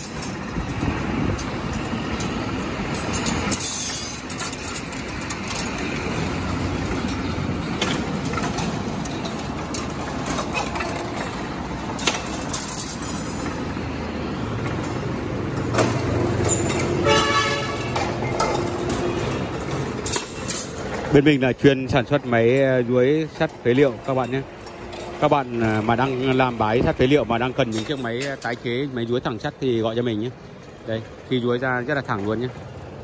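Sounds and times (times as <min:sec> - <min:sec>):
steel rods clanking: 0:00.0 - 0:32.7
wire straightening machine rattling: 0:00.0 - 0:33.0
horn-like toot: 0:17.0 - 0:17.9.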